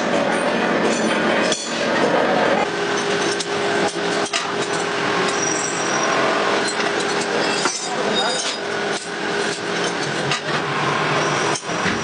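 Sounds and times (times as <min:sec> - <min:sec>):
metal-cutting machine hum: 0:00.0 - 0:12.0
metallic clatter: 0:06.6 - 0:10.6.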